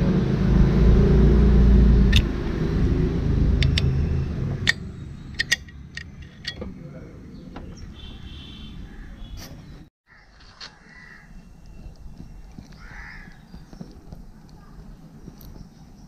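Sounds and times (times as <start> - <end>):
low rumble: 0.0 - 7.8.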